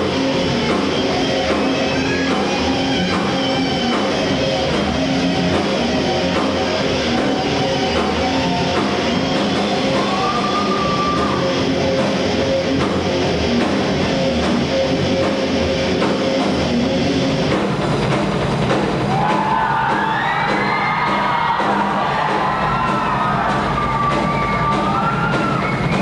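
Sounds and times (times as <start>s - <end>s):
distorted electric guitars: 0.0s - 26.0s
drum kit: 0.0s - 26.0s.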